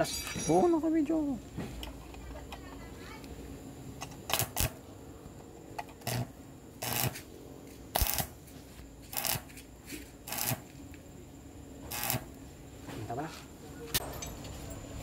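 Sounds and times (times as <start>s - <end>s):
welding arc crackling: 6.0s - 7.3s, 7.9s - 9.6s, 10.2s - 10.8s, 11.9s - 12.4s.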